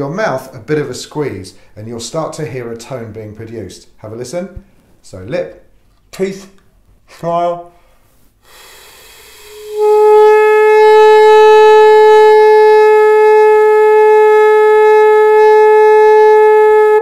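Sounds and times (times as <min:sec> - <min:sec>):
faint air hiss: 0:00.0 - 0:12.3
saxophone mouthpiece note: 0:08.4 - 0:17.0.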